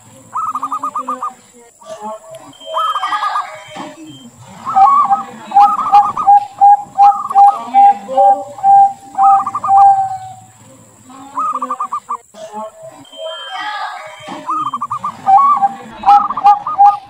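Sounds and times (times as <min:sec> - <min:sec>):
dove cooing and trilling: 0:00.4 - 0:01.3, 0:02.6 - 0:03.6, 0:04.6 - 0:10.5, 0:11.2 - 0:12.2, 0:14.5 - 0:17.0.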